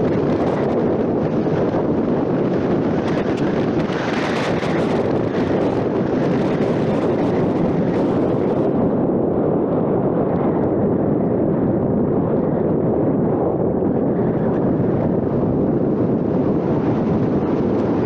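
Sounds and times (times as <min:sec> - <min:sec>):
car road noise: 0:00.0 - 0:08.9, 0:13.7 - 0:18.0
wind buffeting microphone: 0:00.0 - 0:18.0
wind rush: 0:00.0 - 0:18.0.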